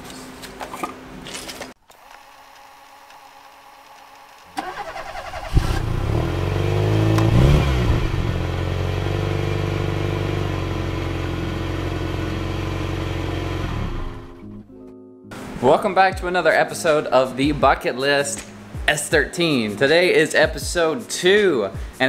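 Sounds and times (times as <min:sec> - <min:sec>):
car starter cranking: 0:04.6 - 0:06.2
car engine revving and idling: 0:04.8 - 0:14.4.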